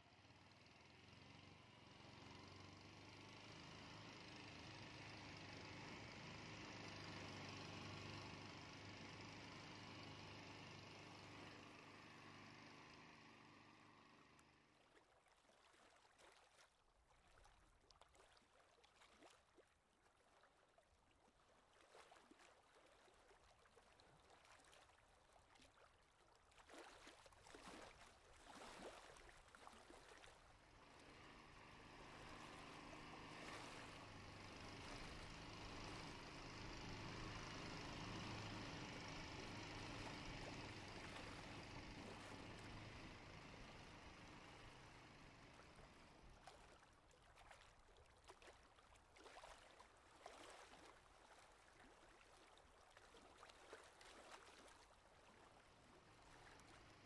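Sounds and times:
low steady hum: 30.5s - 46.8s.

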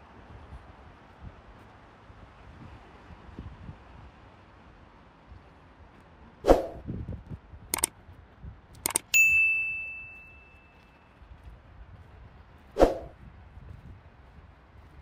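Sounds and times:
mouse clicks: 8.8s - 9.1s
bright bell ding: 9.1s - 10.9s.

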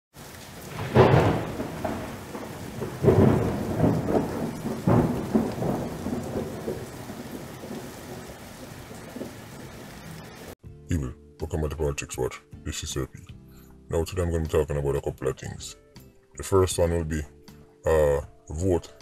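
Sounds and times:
steady rain: 0.1s - 10.6s
thunder claps: 0.2s - 10.6s.

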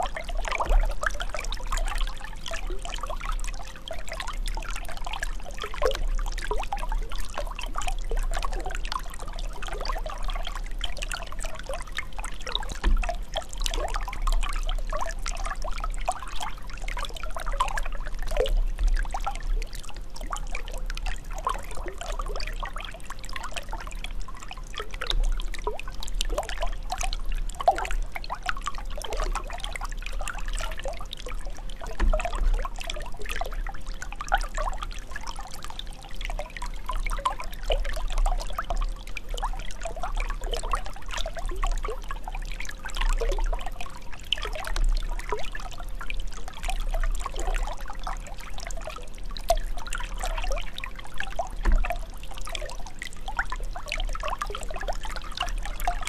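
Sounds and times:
water trickling and bubbling: 0.0s - 56.0s.

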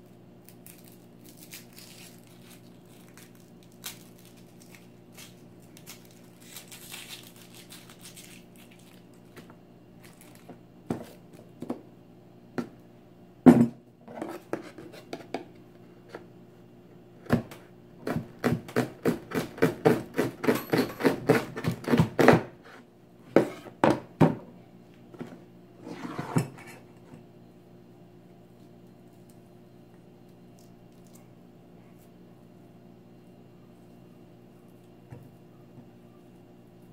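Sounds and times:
knife slicing onion on board: 18.0s - 22.5s.

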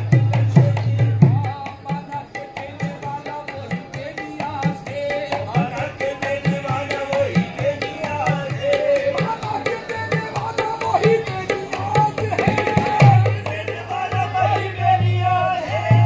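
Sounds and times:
hand drum beat: 3.5s - 15.2s.

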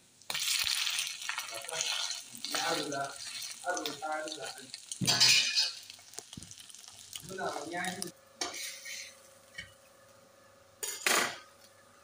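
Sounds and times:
burger patty sizzling in a pan: 0.0s - 9.8s
metal spatula scraping: 8.4s - 9.3s.

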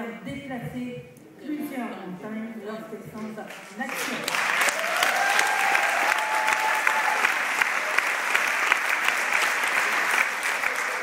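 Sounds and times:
audience applauding: 3.6s - 11.0s
crowd cheering: 4.2s - 11.0s.

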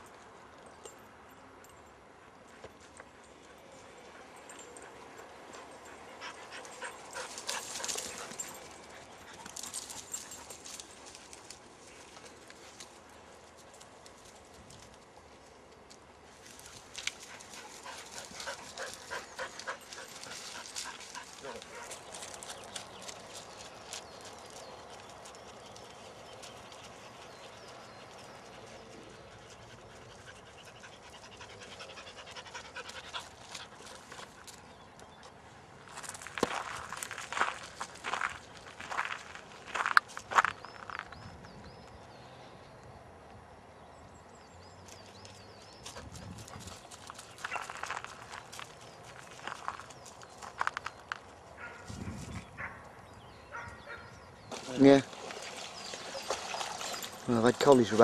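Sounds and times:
dogs panting: 2.2s - 13.8s, 16.6s - 24.6s, 25.2s - 34.9s
dogs running through dry undergrowth: 6.5s - 15.5s, 16.3s - 27.4s, 45.1s - 52.7s, 54.5s - 58.0s
footsteps on gravel: 35.9s - 41.1s, 46.8s - 51.4s.

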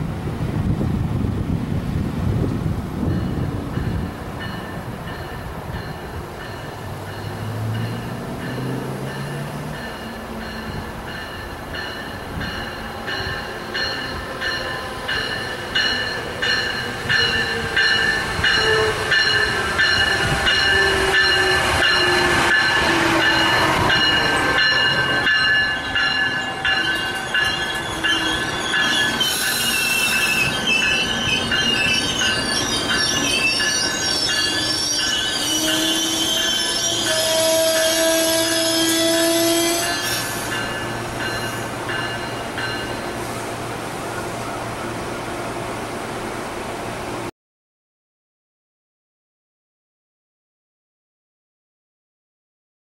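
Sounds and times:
high squealing tones: 13.1s - 40.4s.

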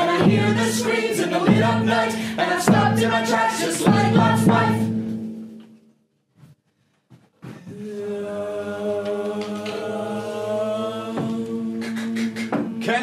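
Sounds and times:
person singing: 0.0s - 4.9s, 7.6s - 13.0s
choir holding a chord: 0.0s - 5.0s, 7.7s - 11.9s.

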